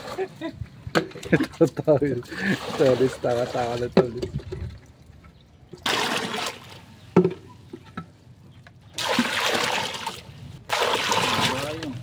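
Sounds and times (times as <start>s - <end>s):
water splashing: 2.2s - 5.1s, 5.7s - 7.1s, 8.9s - 12.0s.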